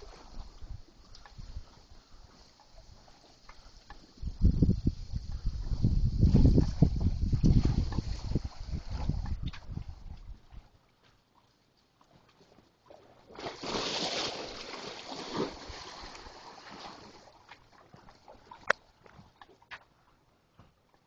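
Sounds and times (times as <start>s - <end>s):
sea water splashing on pilings: 0.0s - 10.6s, 12.9s - 19.8s
footsteps on wooden boardwalk: 9.3s - 12.8s, 17.4s - 21.0s.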